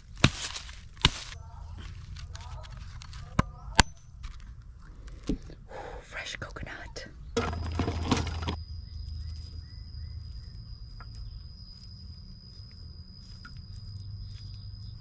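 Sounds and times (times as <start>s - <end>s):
faint chirps: 8.6s - 15.0s.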